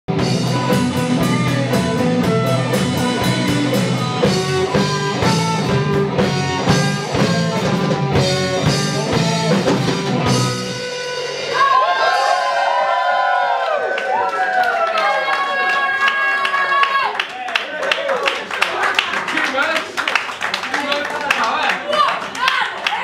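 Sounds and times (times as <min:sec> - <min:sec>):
rock band playing: 0:00.1 - 0:13.1
people shouting: 0:11.5 - 0:17.2.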